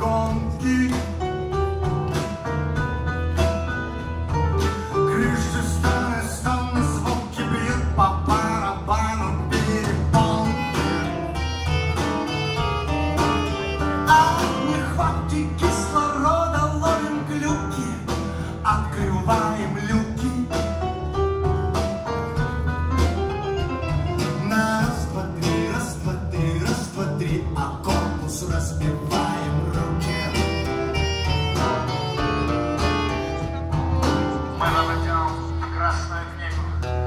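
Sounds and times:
bass line: 0.0s - 37.0s
guitar: 0.0s - 37.0s
drum beat: 8.3s - 35.7s
saxophone melody: 10.1s - 15.4s, 29.6s - 34.8s.

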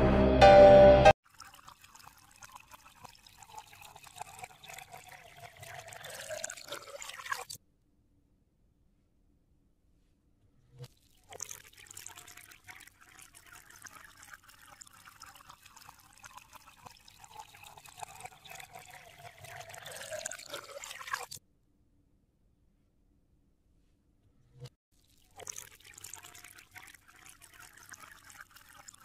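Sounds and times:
water pouring into puddle: 1.2s - 7.6s, 10.8s - 21.4s, 24.9s - 29.0s.

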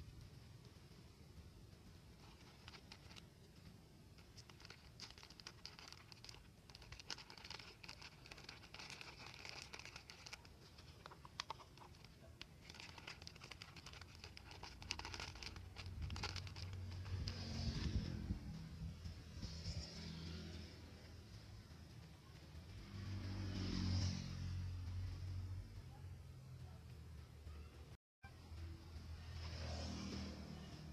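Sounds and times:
thin plastic crinkling: 2.1s - 17.7s.

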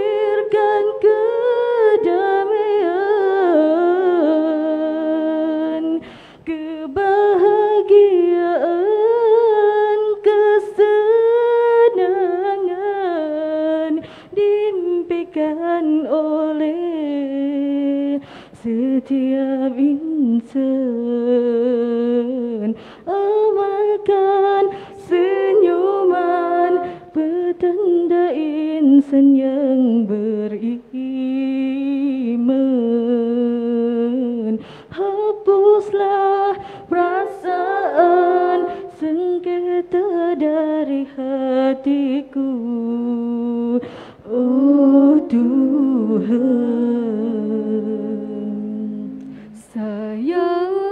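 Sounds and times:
women singing a cappella: 0.0s - 50.9s
breaths between phrases: 6.0s - 6.4s, 18.2s - 18.6s, 43.8s - 44.2s.

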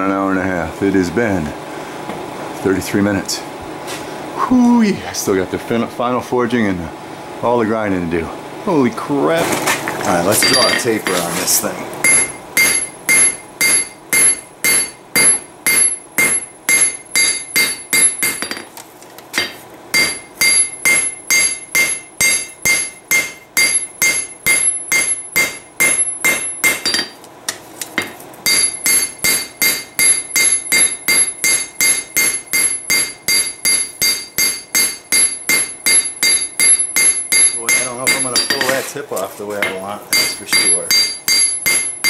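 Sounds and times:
hammer striking steel on anvil: 10.4s - 11.2s, 12.0s - 18.7s, 19.4s - 38.8s, 39.6s - 42.0s.

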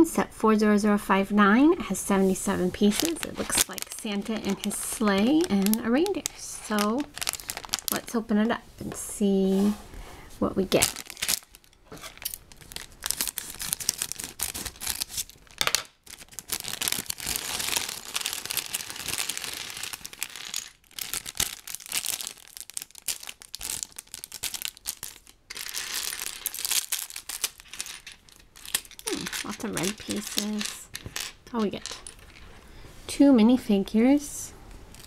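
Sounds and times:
plastic bag crinkling: 2.8s - 8.2s, 10.7s - 32.6s
plastic pieces clattering on table: 15.5s - 15.9s, 16.6s - 22.3s, 23.2s - 32.4s.

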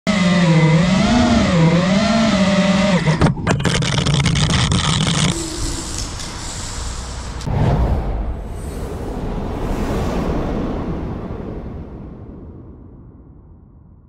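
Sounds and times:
quadcopter motors buzzing: 0.1s - 3.3s, 4.4s - 7.5s.

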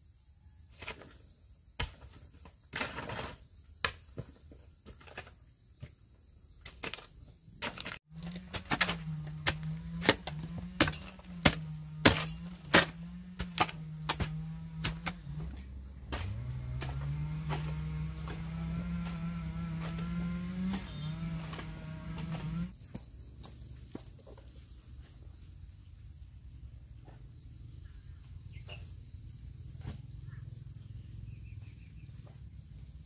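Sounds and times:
low motor hum: 8.0s - 22.8s.

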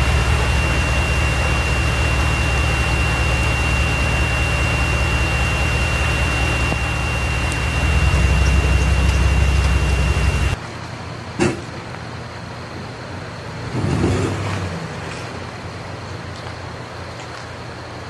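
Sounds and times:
floodwater rushing: 0.0s - 10.6s.

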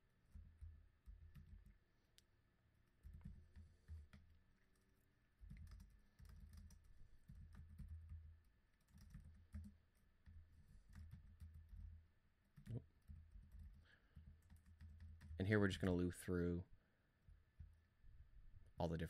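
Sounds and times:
typing on computer keyboard: 0.2s - 1.8s, 2.9s - 11.9s, 12.5s - 15.4s.

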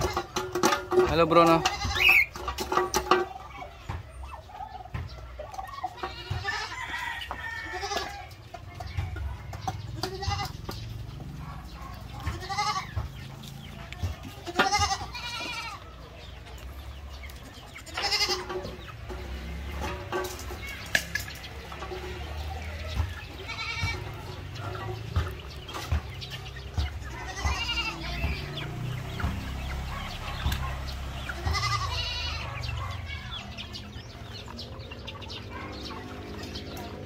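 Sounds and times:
chickens calling: 0.0s - 37.0s
goats bleating: 1.4s - 2.4s, 5.9s - 8.3s, 10.0s - 10.8s, 12.1s - 13.2s, 13.9s - 16.0s, 17.8s - 18.8s, 23.0s - 24.8s, 26.0s - 28.6s, 30.7s - 33.7s.

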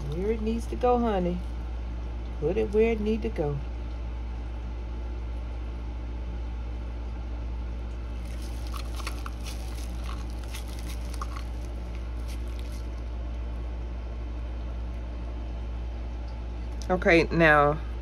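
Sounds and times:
resin squishing and crackling: 0.0s - 1.6s, 8.0s - 13.3s
low hum: 0.0s - 18.0s.

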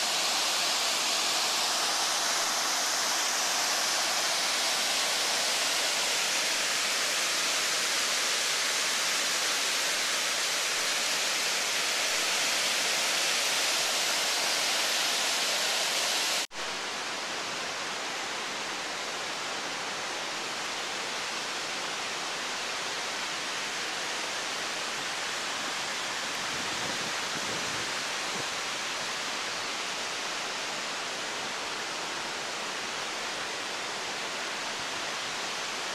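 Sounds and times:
waterfall rushing: 0.0s - 16.5s.

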